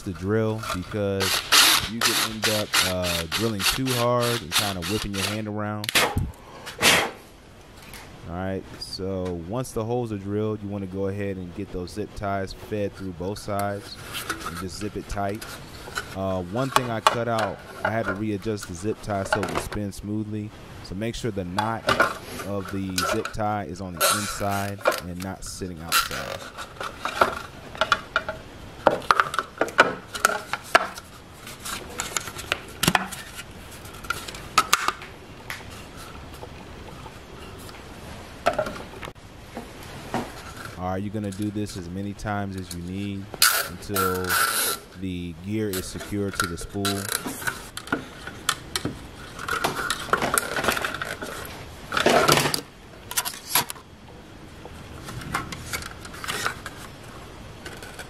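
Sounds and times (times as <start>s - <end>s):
plastic scrape: 0.0s - 5.5s, 13.2s - 19.7s, 21.6s - 28.1s, 28.9s - 35.0s, 42.6s - 45.0s, 45.6s - 53.8s, 54.9s - 58.0s.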